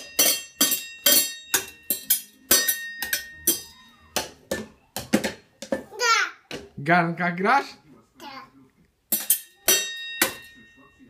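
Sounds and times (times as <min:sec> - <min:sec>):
utensils banging on pots: 0:00.0 - 0:05.9, 0:09.1 - 0:10.9.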